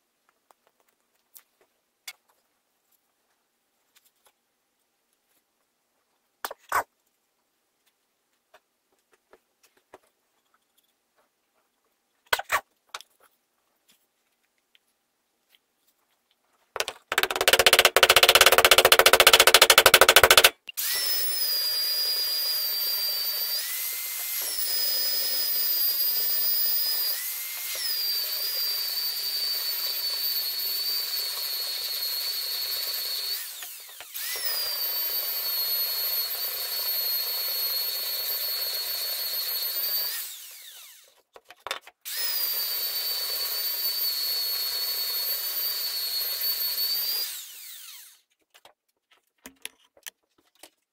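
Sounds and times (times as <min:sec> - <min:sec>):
power tool whining: 0:17.1 - 0:41.1, 0:42.1 - 0:48.2.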